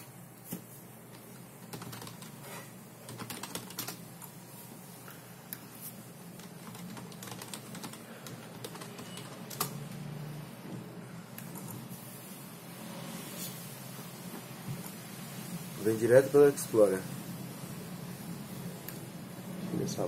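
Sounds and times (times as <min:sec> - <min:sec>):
typing on computer keyboard: 0:01.6 - 0:04.0, 0:06.4 - 0:09.9.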